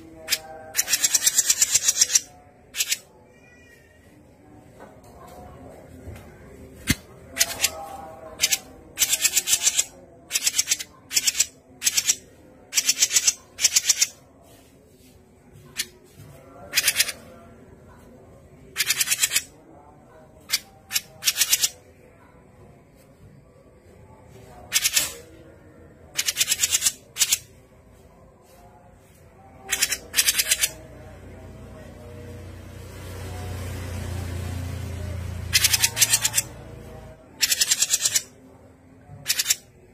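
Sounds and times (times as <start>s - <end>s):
bird rattling chatter calls: 0.3s - 3.0s, 8.4s - 14.2s, 18.8s - 19.5s, 29.7s - 30.8s, 35.5s - 36.5s, 37.4s - 38.3s, 39.2s - 39.6s.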